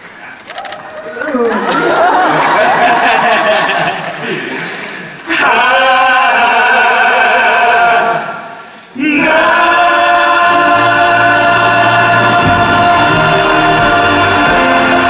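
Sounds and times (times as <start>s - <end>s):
male choir singing held notes: 4.2s - 15.0s.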